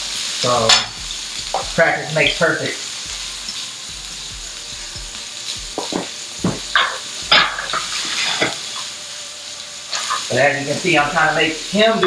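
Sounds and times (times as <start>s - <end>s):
food sizzling in a frying pan: 0.0s - 12.0s
utensil knocking against pan: 5.7s - 7.8s.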